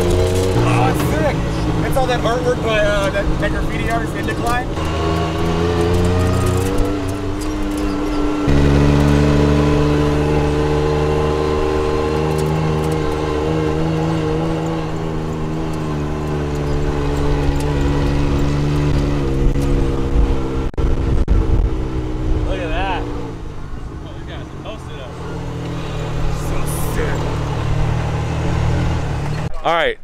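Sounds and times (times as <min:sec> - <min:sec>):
vehicle engine running: 0:00.0 - 0:29.6.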